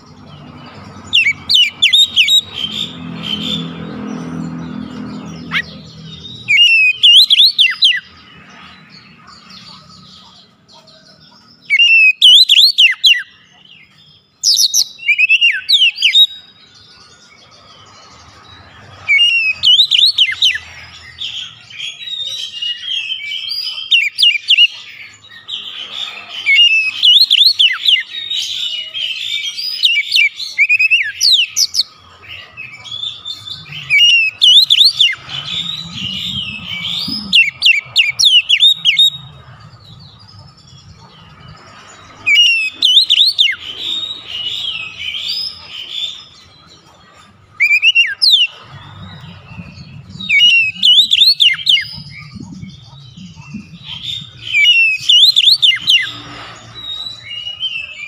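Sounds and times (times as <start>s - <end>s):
bird singing whistles: 5.4s - 8.1s, 11.7s - 13.3s, 14.4s - 16.5s, 19.1s - 20.6s, 26.4s - 31.9s, 32.8s - 39.2s, 42.2s - 46.1s, 47.6s - 58.0s.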